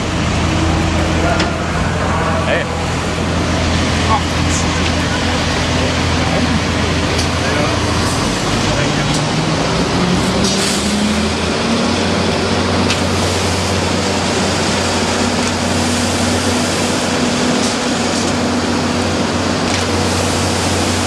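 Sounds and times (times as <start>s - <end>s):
heavy truck engine revving: 0.0s - 21.0s
water jet rushing hiss: 9.6s - 21.0s.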